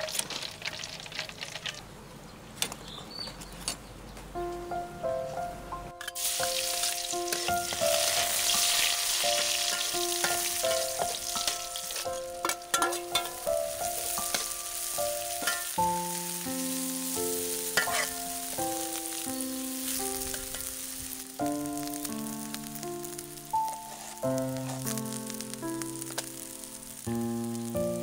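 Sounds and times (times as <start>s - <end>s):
garlic and oil sizzling in a wok: 0.0s - 1.8s, 6.0s - 28.0s
soft background music: 4.3s - 28.0s
spatula scraping a pan: 7.3s - 14.6s, 15.3s - 15.9s, 17.8s - 18.2s, 23.7s - 25.0s.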